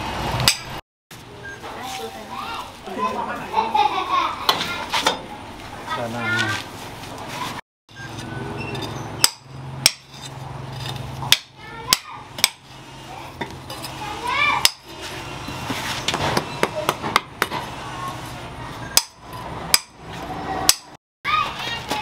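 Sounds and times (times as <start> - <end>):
hammer striking stone: 0.4 - 0.7, 9.2 - 10.1.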